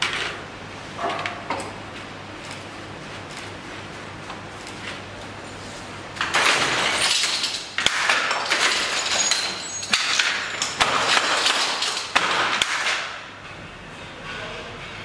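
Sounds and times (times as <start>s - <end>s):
loom harness rattling: 6.2s - 13.2s
sharp loom knocks: 6.2s - 13.2s.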